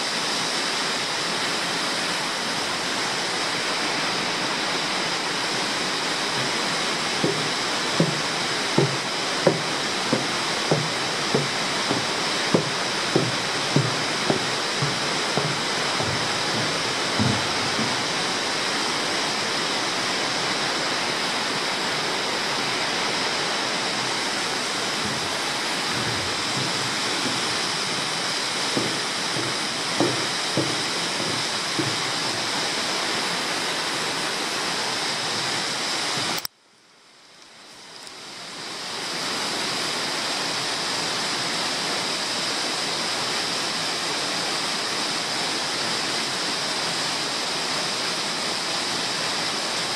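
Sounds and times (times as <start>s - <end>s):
water flowing in cave: 0.0s - 36.5s, 38.0s - 49.9s
soft thumps: 6.3s - 18.5s, 24.8s - 32.6s.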